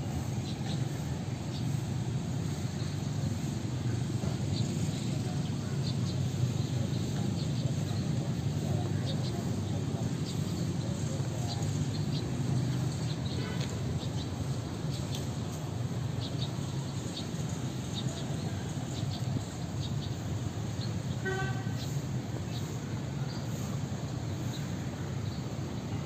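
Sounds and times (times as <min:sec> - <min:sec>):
town traffic rumble: 0:00.0 - 0:26.0
vehicle horn toot: 0:21.2 - 0:22.0.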